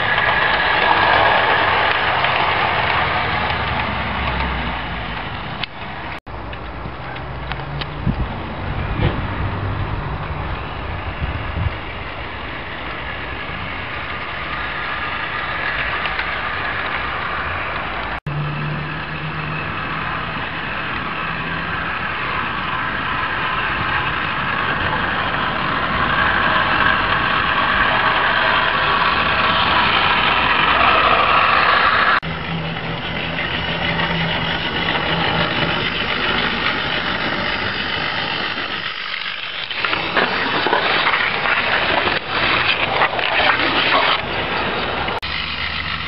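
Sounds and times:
wheels rumbling on rail: 0.0s - 46.0s
model train motor whining: 19.0s - 46.0s.

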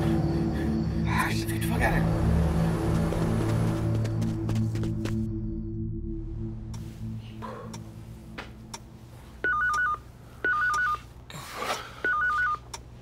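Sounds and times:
electronic telephone ringing: 9.4s - 11.0s, 12.0s - 12.6s.

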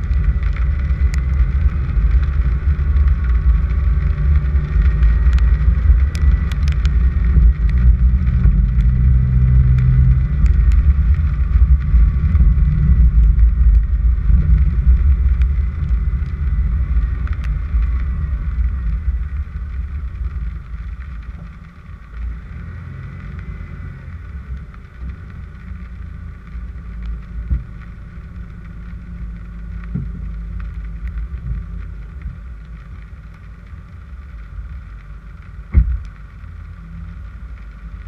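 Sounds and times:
car engine running: 0.0s - 38.0s
sharp loud thump: 35.7s - 36.0s.

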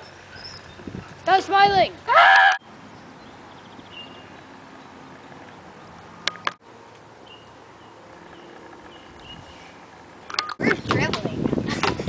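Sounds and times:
high bird chirps: 2.9s - 5.5s.

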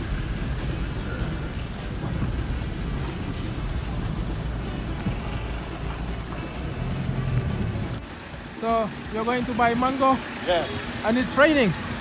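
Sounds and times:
rain on a car: 0.0s - 6.1s
car engine and tyre rumble: 0.0s - 12.0s.

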